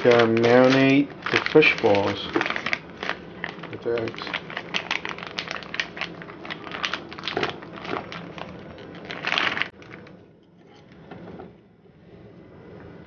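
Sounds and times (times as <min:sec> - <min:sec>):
plastic packaging crinkling: 0:00.0 - 0:10.1.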